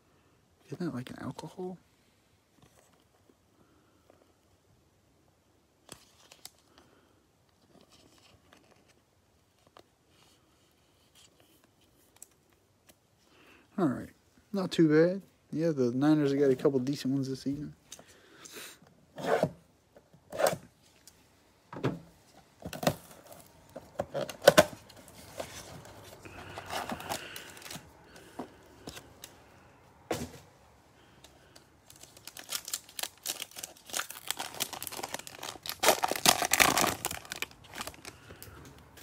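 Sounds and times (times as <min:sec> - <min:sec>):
foil pack tearing and crinkling: 0:31.9 - 0:38.2.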